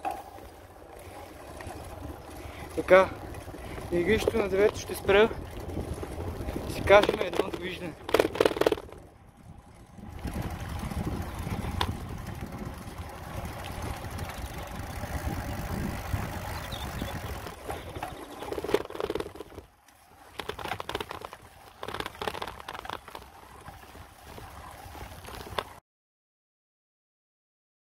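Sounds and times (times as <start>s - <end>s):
bicycle tyres rumbling on asphalt: 0.0s - 25.8s
wind on microphone: 4.8s - 19.6s.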